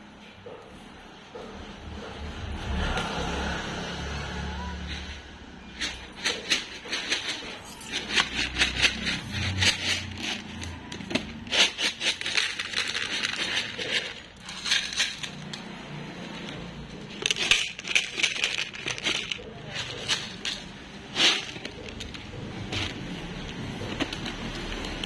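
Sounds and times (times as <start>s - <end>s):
cat crunching dry kibble: 5.8s - 25.0s.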